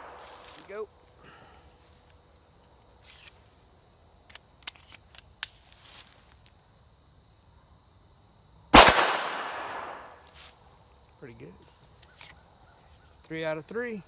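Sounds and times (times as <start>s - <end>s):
pistol shot with echo: 8.7s - 10.1s.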